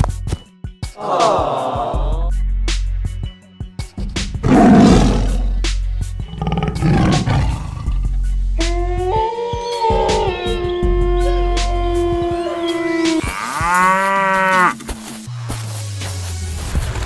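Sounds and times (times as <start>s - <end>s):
background music: 0.0s - 17.0s
tiger roar: 4.4s - 8.2s.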